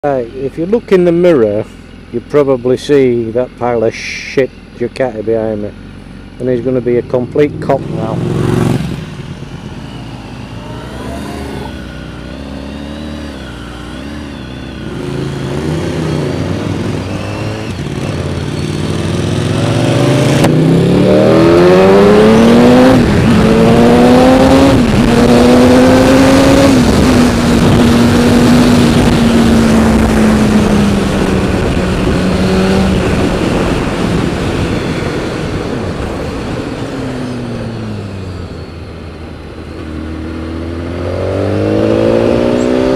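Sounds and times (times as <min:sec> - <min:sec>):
motorcycle engine revving: 0:00.1 - 0:42.9
wind noise: 0:15.1 - 0:42.9.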